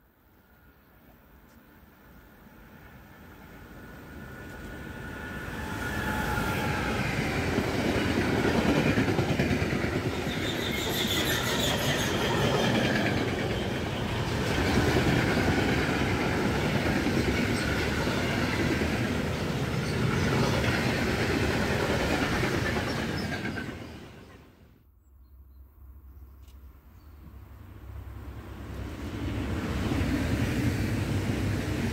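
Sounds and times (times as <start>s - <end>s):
electric locomotive whine: 1.7s - 24.7s.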